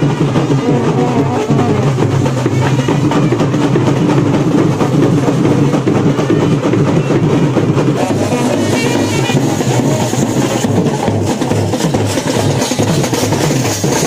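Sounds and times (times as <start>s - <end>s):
driving drum beat: 0.0s - 14.0s
brass band playing loudly: 0.4s - 3.3s, 7.9s - 14.0s.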